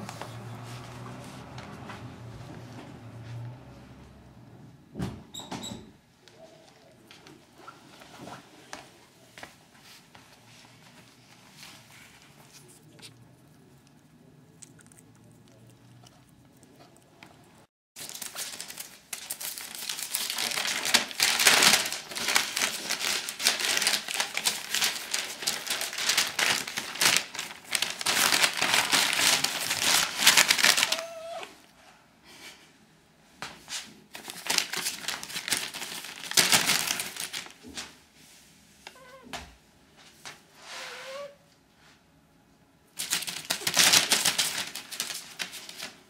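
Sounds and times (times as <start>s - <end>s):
newspaper crinkling and rustling: 18.0s - 31.4s, 34.1s - 38.0s, 43.0s - 46.0s
puppy whining: 30.7s - 31.7s, 40.8s - 41.5s.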